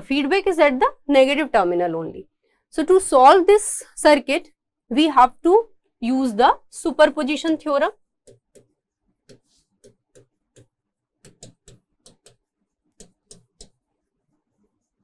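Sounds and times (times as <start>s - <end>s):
stylus tapping on tablet: 7.5s - 13.9s.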